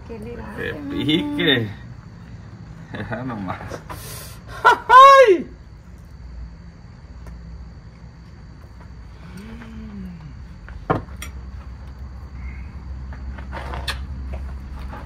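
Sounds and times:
man humming while chewing: 9.1 - 10.8.

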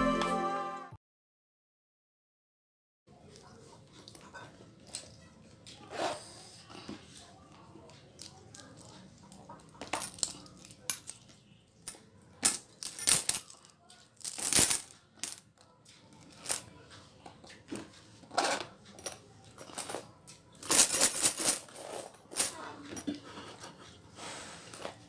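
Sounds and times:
coin purse rattling: 9.8 - 11.1, 12.4 - 13.6, 14.2 - 15.4, 20.6 - 22.5
coins clinking: 12.4 - 13.6, 14.2 - 15.4, 20.6 - 22.5.

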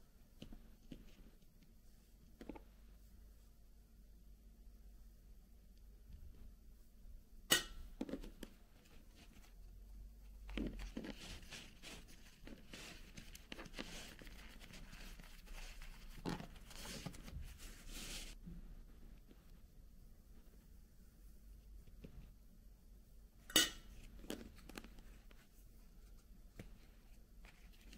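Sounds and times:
rustling and crinkling: 0.3 - 3.5, 7.9 - 22.4, 23.9 - 27.9.

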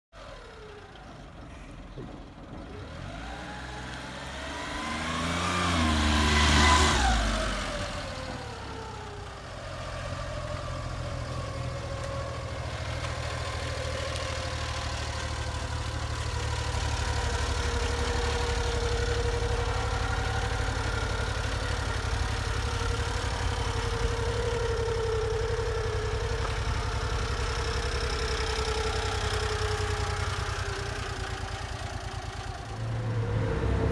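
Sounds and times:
truck engine running: 0.2 - 33.9.

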